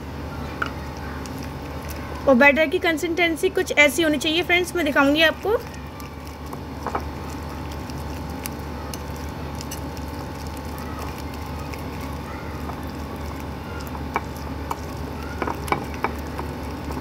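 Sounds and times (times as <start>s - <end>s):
spoon stirring thick batter: 4.6s - 17.0s.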